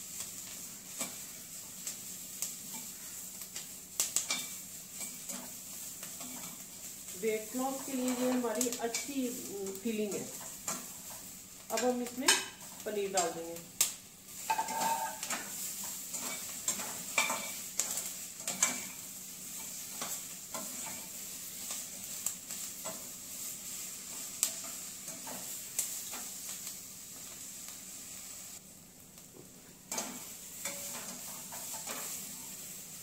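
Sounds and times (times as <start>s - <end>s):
food sizzling in a pan: 0.0s - 33.0s
metal spatula scraping and clicking: 0.9s - 1.2s, 2.7s - 6.7s, 9.7s - 13.4s, 14.5s - 19.0s, 19.6s - 23.1s, 24.1s - 26.6s, 29.9s - 32.6s.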